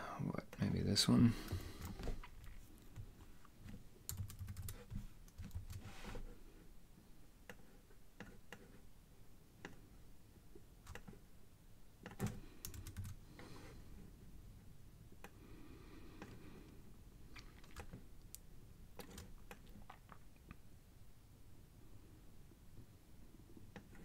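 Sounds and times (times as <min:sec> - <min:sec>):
mouse and keyboard clicks: 0:10.9 - 0:11.2.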